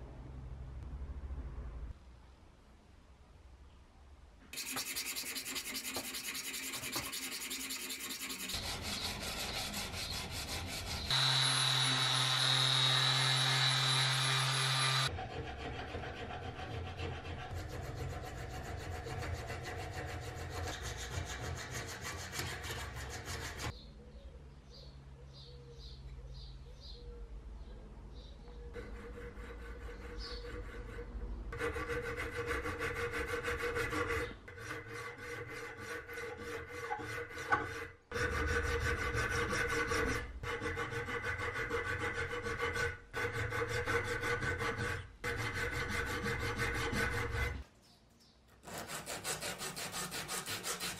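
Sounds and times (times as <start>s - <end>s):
hand file rasping on steel: 4.6s - 23.7s, 28.8s - 47.6s, 48.6s - 50.9s
power tool running: 11.1s - 15.1s.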